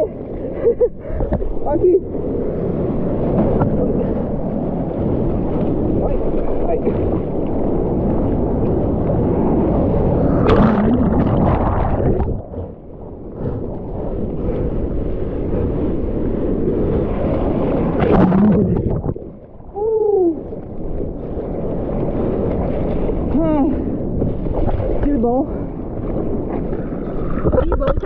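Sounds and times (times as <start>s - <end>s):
surf rushing and splashing: 0.0s - 28.0s
falling gurgling tone: 8.4s - 14.7s, 17.8s - 21.7s.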